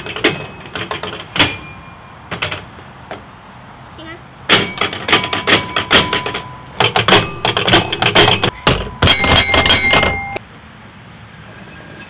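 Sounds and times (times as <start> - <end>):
metallic ring: 0.0 - 2.2, 4.5 - 10.4, 11.2 - 12.0.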